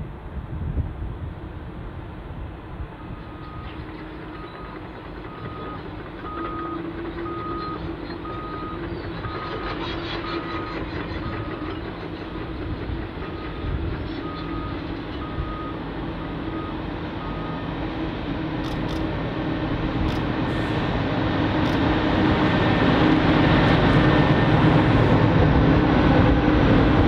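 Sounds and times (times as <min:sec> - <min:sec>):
diesel locomotives rumbling: 0:00.0 - 0:27.0
reversing alarm beeping: 0:03.0 - 0:10.6, 0:13.3 - 0:17.8.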